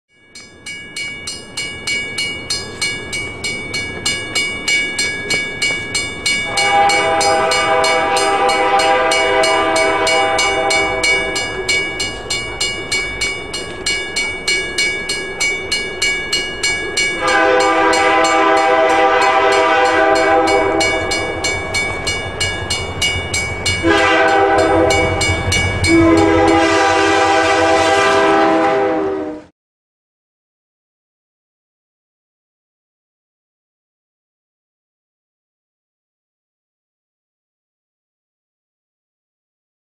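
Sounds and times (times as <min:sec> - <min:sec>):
level crossing bell ringing: 0:00.2 - 0:27.2
locomotive low rumble: 0:02.2 - 0:27.8
locomotive air horn blasts: 0:06.5 - 0:11.7, 0:17.2 - 0:21.8, 0:23.7 - 0:29.5.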